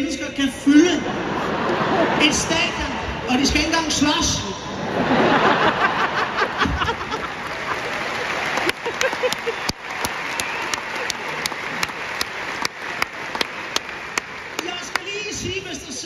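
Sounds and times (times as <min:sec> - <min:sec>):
audience applauding: 0:05.2 - 0:16.0
sharp claps close to microphone: 0:07.4 - 0:15.4.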